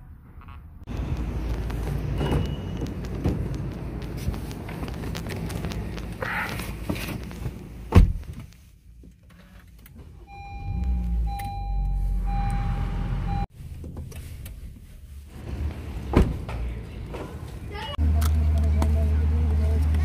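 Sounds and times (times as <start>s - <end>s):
car engine starting and running: 9.2s - 20.0s
dashboard warning chime: 10.3s - 13.5s.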